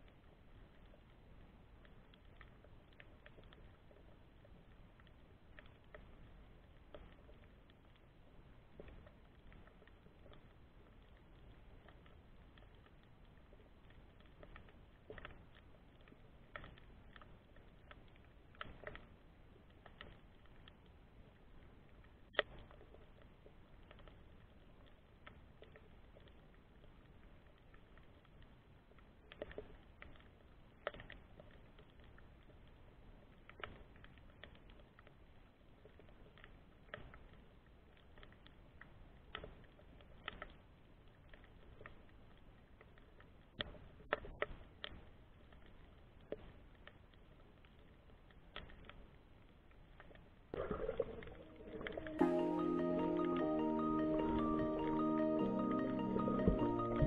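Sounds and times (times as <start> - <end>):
underwater clicks and crackles: 0.0 - 57.0
low underwater rumble: 50.5 - 57.0.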